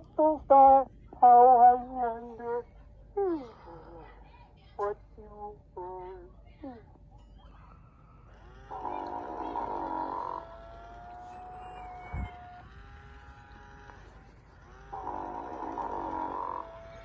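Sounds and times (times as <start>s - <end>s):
toy snoring through speaker: 8.4s - 17.0s.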